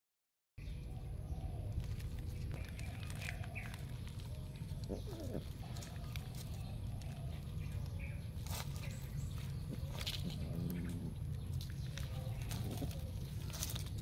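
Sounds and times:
birds chirping faintly: 0.6 - 14.0
low outdoor rumble: 0.6 - 14.0.

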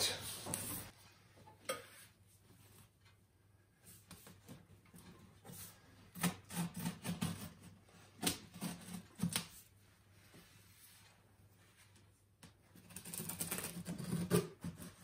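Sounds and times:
knife cutting packing tape: 12.8 - 15.0.

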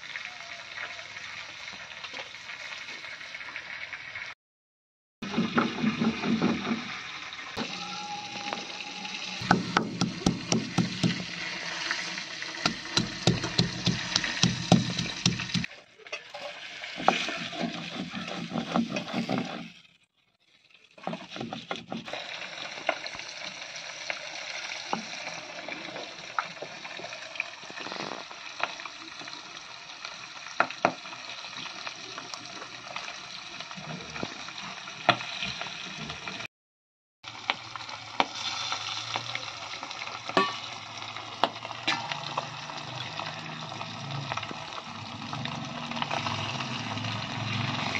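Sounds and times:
stone grinding scrape: 17.1 - 19.8.

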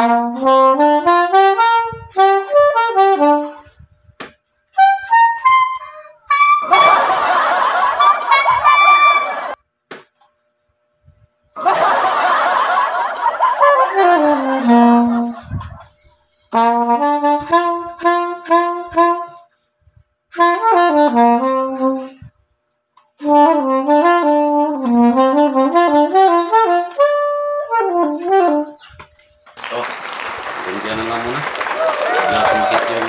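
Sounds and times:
soprano saxophone playing: 0.0 - 3.9, 4.7 - 7.2, 8.0 - 9.6, 13.4 - 19.5, 20.3 - 22.3, 23.2 - 29.0.

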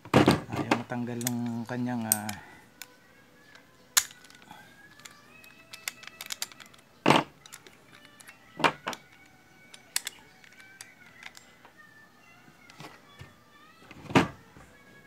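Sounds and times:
wrench clicking on metal: 1.1 - 2.9, 4.0 - 6.8, 7.4 - 11.5.

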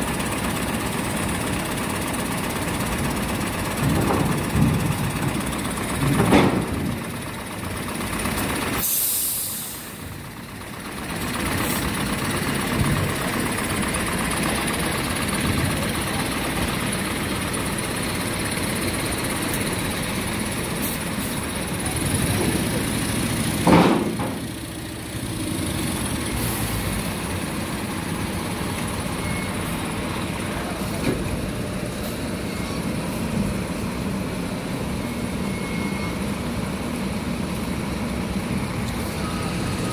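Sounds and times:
truck diesel engine running: 0.0 - 39.9
air brake hiss: 8.8 - 10.0.

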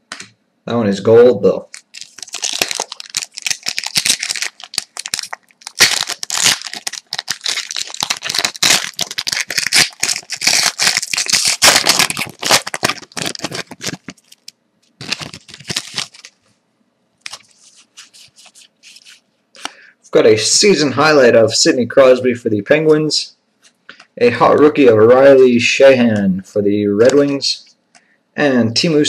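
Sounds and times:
wrapper tearing and crinkling: 1.7 - 16.4, 17.2 - 19.2.

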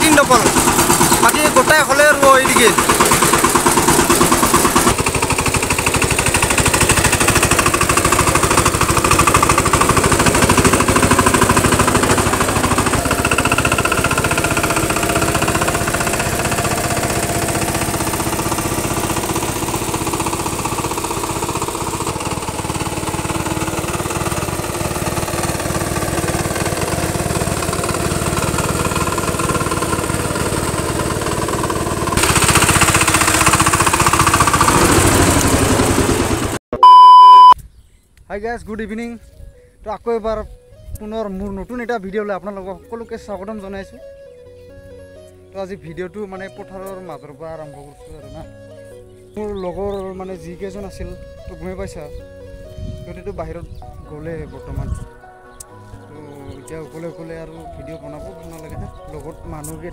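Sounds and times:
diesel tiller engine knocking: 0.0 - 36.6.

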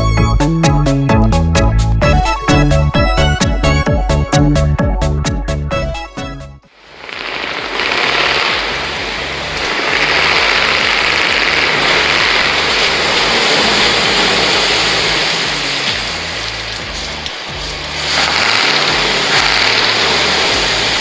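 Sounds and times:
diesel truck engine rumbling: 0.0 - 21.0
rain on wet pavement: 6.7 - 21.0.

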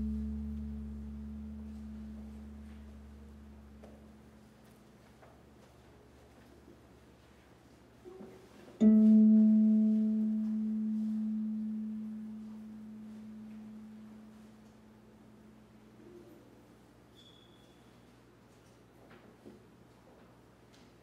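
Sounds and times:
low plucked string note: 0.0 - 4.3, 8.8 - 14.9
faint soft note: 0.0 - 4.5, 8.8 - 16.2.

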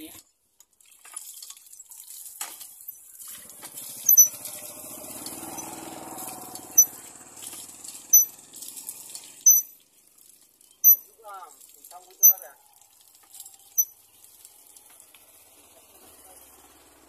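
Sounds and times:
water splashing from spout: 0.0 - 17.0
hand pump handle squeaking: 4.0 - 4.5, 5.5 - 5.8, 6.7 - 7.0, 8.1 - 8.3, 9.4 - 9.7, 10.8 - 11.1, 12.2 - 12.5.

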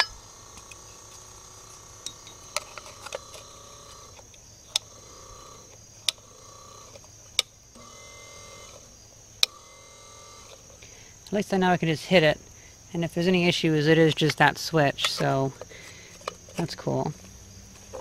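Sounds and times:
electric motor humming: 0.0 - 11.2.

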